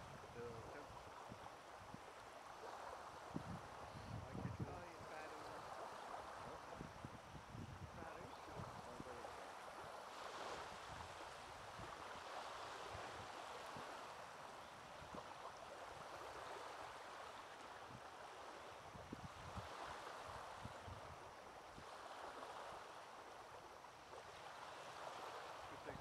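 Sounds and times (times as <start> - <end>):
small waves lapping on pebbles: 0.3 - 4.0, 4.8 - 6.9, 8.1 - 26.0.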